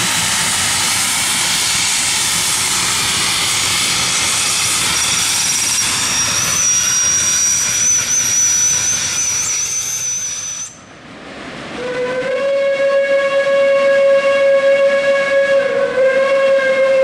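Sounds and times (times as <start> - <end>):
steam locomotive exhaust: 0.0 - 10.9, 11.6 - 17.0
high-pitched squeal: 0.7 - 10.9
steam whistle: 11.8 - 17.0.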